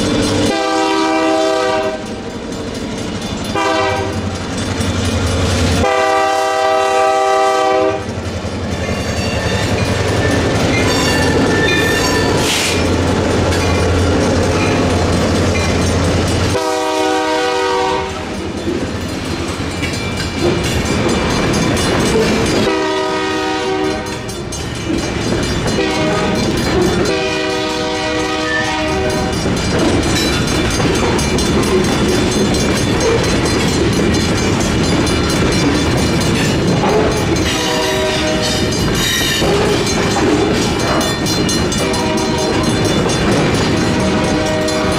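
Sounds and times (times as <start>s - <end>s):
crossing bell ringing: 0.0s - 44.9s
train wheel clatter: 0.0s - 44.9s
locomotive horn blasts: 0.5s - 2.1s, 3.5s - 4.3s, 5.8s - 8.1s, 16.5s - 18.3s, 22.6s - 24.2s, 25.7s - 26.5s, 27.1s - 29.3s, 36.8s - 38.8s, 41.8s - 42.8s, 43.8s - 44.9s.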